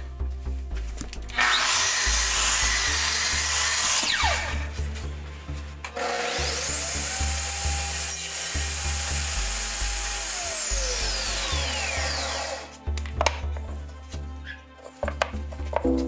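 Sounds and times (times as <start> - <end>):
background music with steady beat: 0.0 - 16.0
table saw motor whining: 1.3 - 4.7, 5.9 - 12.7.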